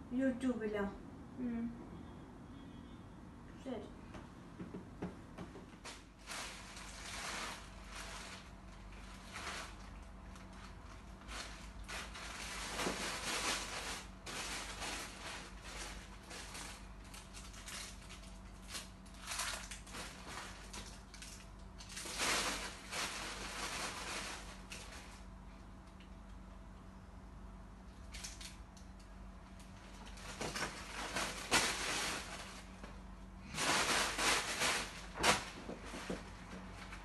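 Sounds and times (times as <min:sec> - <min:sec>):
plastic bag rustling: 0:05.8 - 0:25.4, 0:29.5 - 0:37.0.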